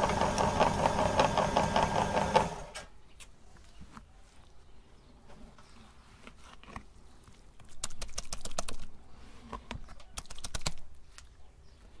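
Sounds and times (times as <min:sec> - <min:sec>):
sharp clicking and tapping: 0:07.6 - 0:08.9, 0:10.0 - 0:10.8.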